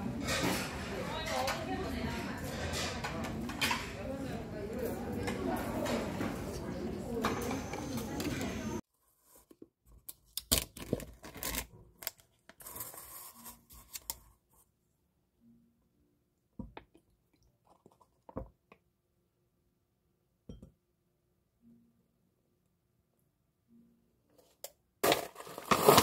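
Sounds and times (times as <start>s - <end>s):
plastic packaging crinkling: 25.0s - 26.0s.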